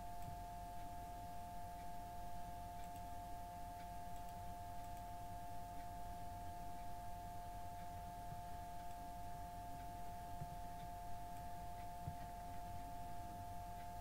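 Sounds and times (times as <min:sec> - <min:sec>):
low background hum: 0:00.0 - 0:14.0
computer mouse clicks: 0:02.8 - 0:03.1, 0:04.1 - 0:05.1.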